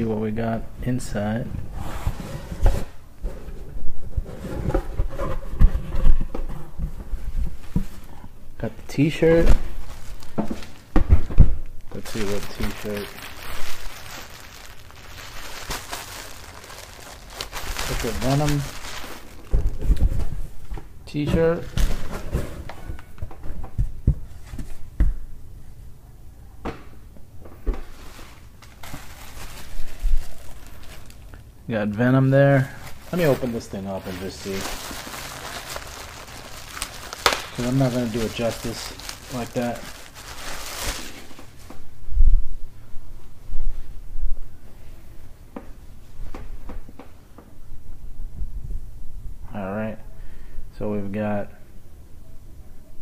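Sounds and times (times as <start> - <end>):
rustling contents: 1.6 - 25.0, 27.8 - 41.9.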